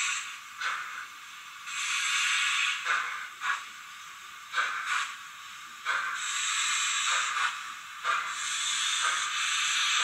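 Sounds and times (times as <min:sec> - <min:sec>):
model locomotive steam chuffs: 0:00.0 - 0:10.0
hiss of escaping steam: 0:01.7 - 0:03.7, 0:04.5 - 0:05.2, 0:05.8 - 0:10.0.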